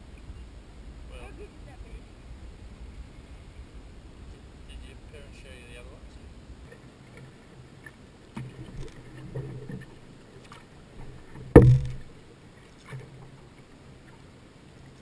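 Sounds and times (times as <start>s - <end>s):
paddle strokes in water: 6.6s - 15.0s
paddle knocking boat hull: 11.4s - 12.2s.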